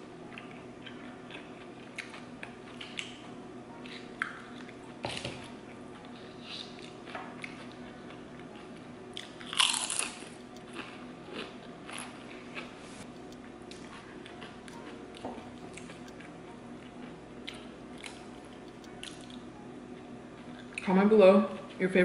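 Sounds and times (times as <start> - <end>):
mouth clicks and chewing: 8.5 - 19.4
crunchy bite: 9.2 - 12.7.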